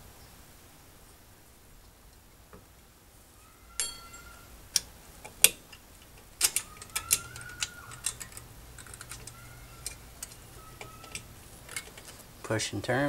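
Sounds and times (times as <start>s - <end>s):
sharp metallic clicks and clinks: 3.8s - 12.1s.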